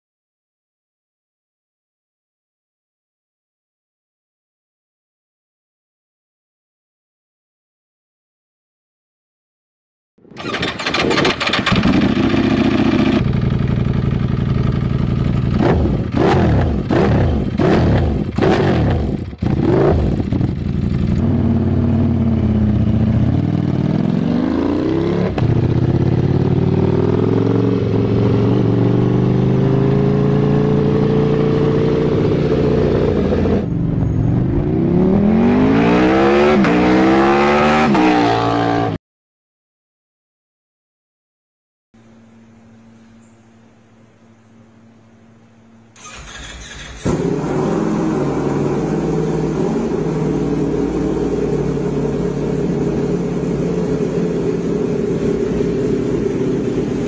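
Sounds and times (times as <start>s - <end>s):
sharp throttle blips: 10.2s - 13.5s
motorcycle engine revving: 10.2s - 39.0s, 46.0s - 57.0s
motorcycle accelerating through gears: 10.3s - 39.0s, 46.0s - 57.0s.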